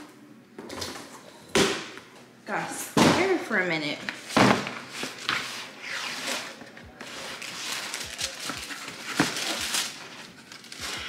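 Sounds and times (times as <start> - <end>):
paper crinkling: 4.1 - 11.0.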